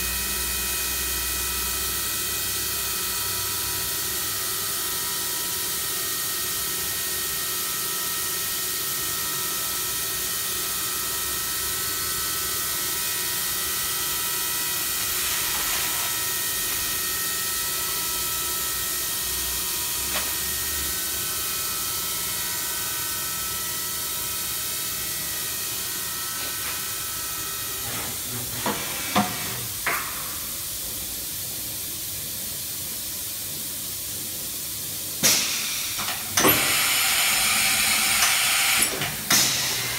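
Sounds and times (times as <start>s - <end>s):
machine whine of steady tones: 0.0s - 39.9s
machine hiss: 9.5s - 39.9s.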